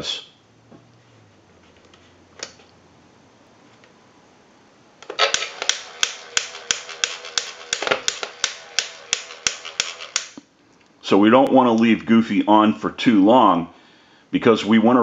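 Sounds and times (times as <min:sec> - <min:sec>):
motor hum with rapid clicking: 0:05.0 - 0:10.4.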